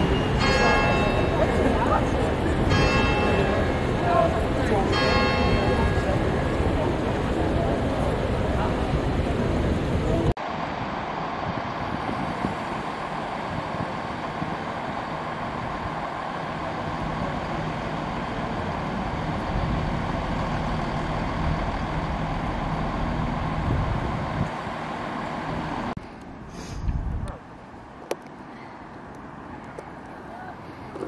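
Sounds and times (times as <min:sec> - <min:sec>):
vehicle road rush: 0:00.0 - 0:31.0
low engine hum: 0:06.7 - 0:27.4.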